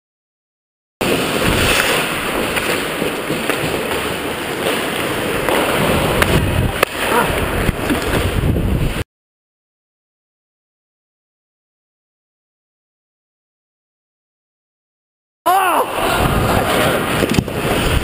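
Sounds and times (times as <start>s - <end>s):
skate blades scraping ice: 1.0s - 8.4s, 16.5s - 18.0s
steady rush of noise: 15.7s - 18.0s.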